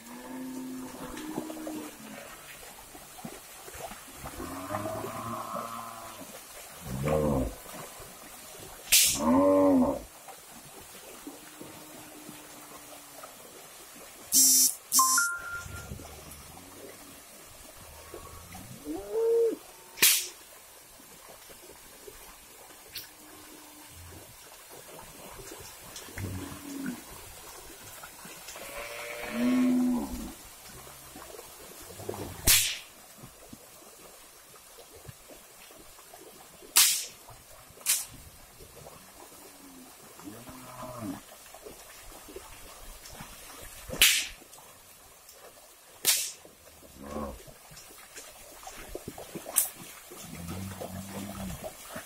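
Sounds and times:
water sloshing and dripping: 0.0 - 14.4, 15.2 - 52.0
sharp crack: 8.9 - 9.2, 20.0 - 20.4, 32.4 - 32.9, 36.8 - 37.2, 37.8 - 38.1, 44.0 - 44.4, 46.0 - 46.4
short sharp noise bursts: 14.3 - 15.4.

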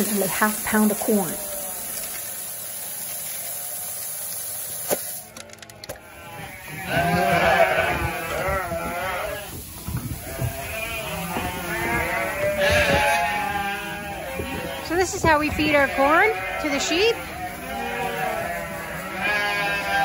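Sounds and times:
corn pouring into plastic bucket: 0.0 - 5.8
sheep bleating: 1.0 - 2.0, 5.9 - 20.0.

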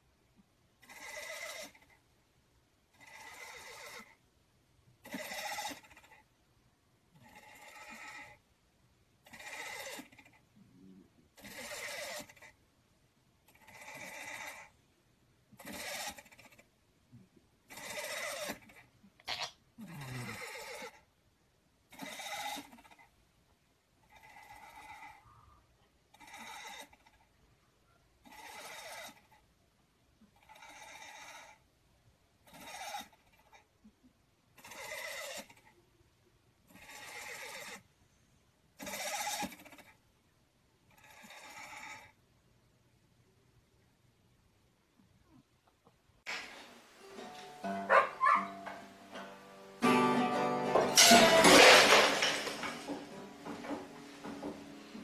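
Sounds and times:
cat snoring: 0.8 - 1.9, 2.9 - 4.2, 5.0 - 6.2, 7.2 - 8.4, 9.2 - 12.6, 13.5 - 14.8, 15.6 - 16.6, 17.7 - 18.8, 19.8 - 21.0, 21.9 - 23.1, 24.1 - 27.2, 28.2 - 29.4, 30.4 - 31.6, 32.4 - 33.6, 34.6 - 35.7, 36.7 - 37.9, 40.9 - 42.2.

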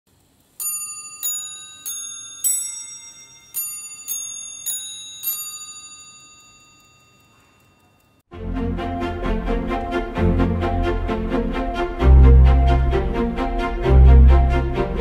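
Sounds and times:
clock chiming on cup bells: 0.6 - 8.3.

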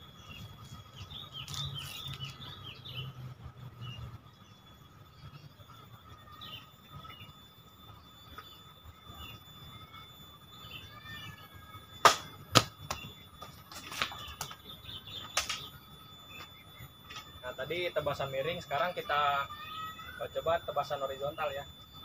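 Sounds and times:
birds chirping faintly: 0.0 - 22.0
sword chopping tree trunk: 12.0 - 12.7.

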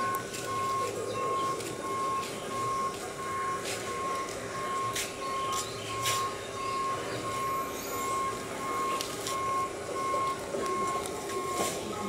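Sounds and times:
electronic warning beeper: 0.0 - 12.0.

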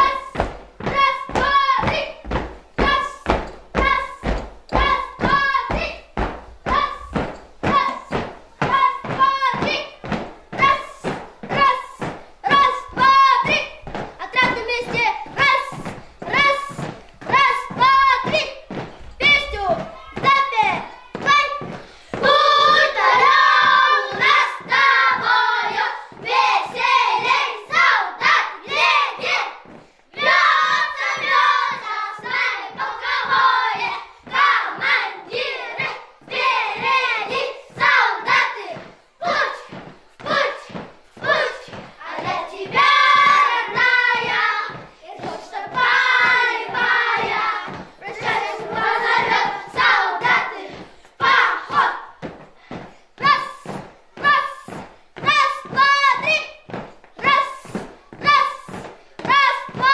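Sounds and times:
boys singing together: 21.4 - 29.4, 30.2 - 52.1.

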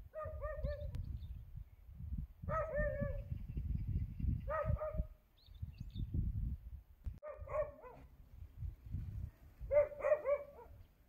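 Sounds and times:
dog barking: 0.1 - 0.9, 2.5 - 3.2, 4.5 - 5.1, 7.2 - 8.1, 9.7 - 10.8.

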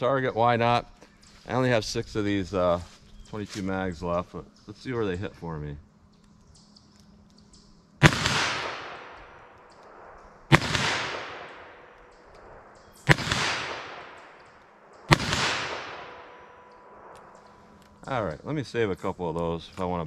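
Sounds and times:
pistol shots with echo: 8.0 - 17.5.

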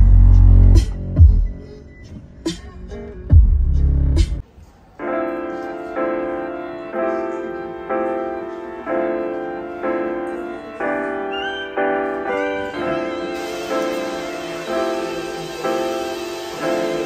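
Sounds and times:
background music chords: 5.0 - 17.0
higher melody line: 5.0 - 17.0.

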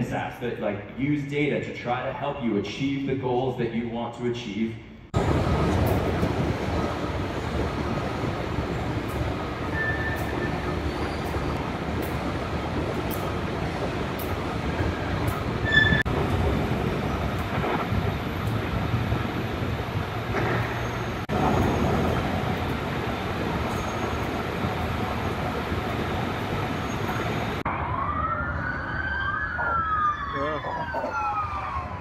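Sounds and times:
transit hall rumble and hiss: 0.0 - 27.7
siren wailing: 27.6 - 32.0.

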